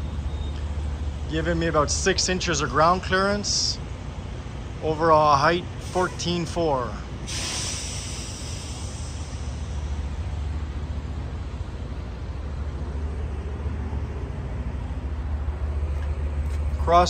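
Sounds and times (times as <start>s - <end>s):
diesel truck engine idling: 0.0s - 17.0s.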